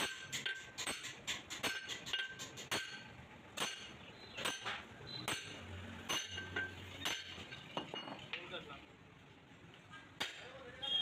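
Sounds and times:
hammer striking steel drift: 0.0s - 7.6s.

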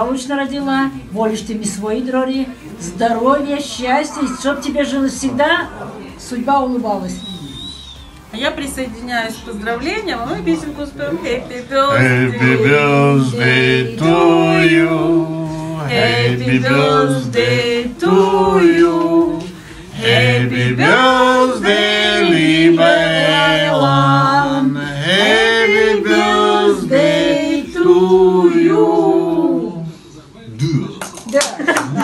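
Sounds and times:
group singing unaccompanied: 10.3s - 30.0s.

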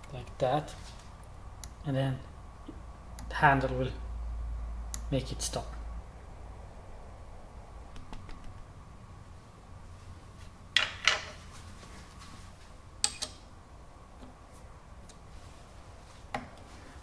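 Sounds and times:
faint steady hum: 0.0s - 17.0s
sharp metal clicks: 13.0s - 13.4s.

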